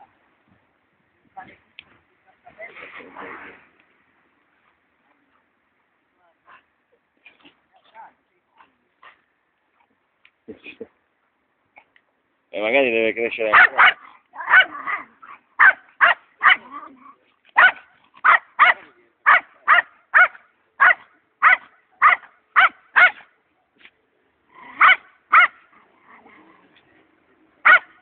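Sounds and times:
small dog yapping: 0:13.5 - 0:17.0, 0:27.6 - 0:27.9.

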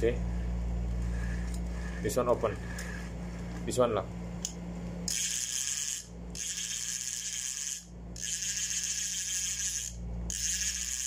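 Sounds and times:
fishing reel clicking rattle: 0:05.1 - 0:11.0.

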